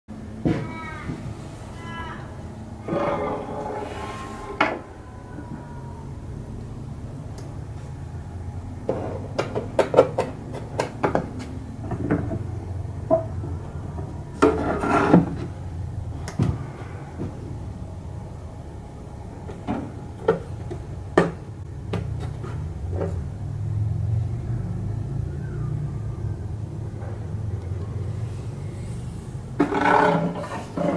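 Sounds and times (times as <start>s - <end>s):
low hum: 0.1s - 30.8s
wooden lid scraping: 14.4s - 15.5s, 29.6s - 30.9s.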